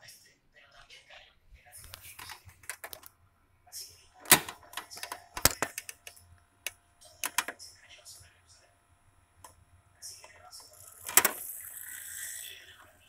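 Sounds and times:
plastic cassette clicks and knocks: 4.3s - 6.1s.

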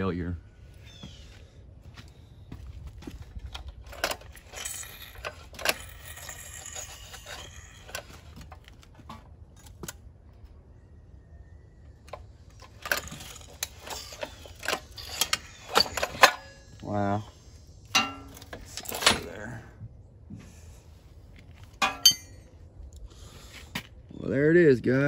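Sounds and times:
metal engine parts clinking: 3.5s - 10.0s, 12.1s - 16.8s, 17.8s - 19.5s, 21.6s - 22.6s.

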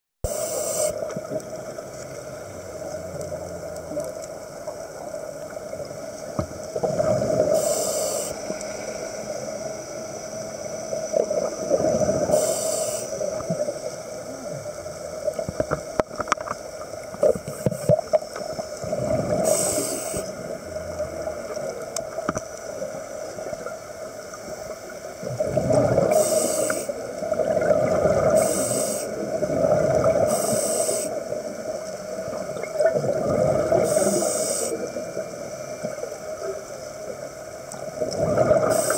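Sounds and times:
diver inhaling through regulator: 0.3s - 1.0s, 7.4s - 9.3s, 12.2s - 13.4s, 19.3s - 20.3s, 26.1s - 27.0s, 28.2s - 29.2s, 30.2s - 31.2s, 33.7s - 34.9s
exhaled bubbles gurgling: 0.3s - 38.9s
underwater murmur: 24.8s - 38.9s.

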